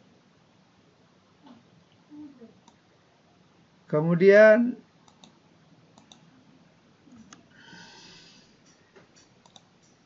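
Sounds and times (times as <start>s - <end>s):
faint clicks: 5.0s - 6.3s, 8.7s - 10.0s
soft breath: 7.1s - 9.0s.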